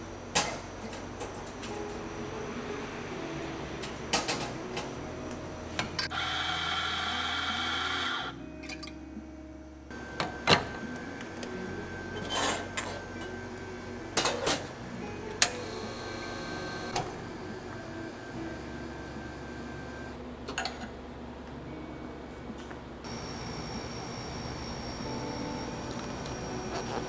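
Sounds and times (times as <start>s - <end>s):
coffee grinder whirring: 6.1s - 8.4s.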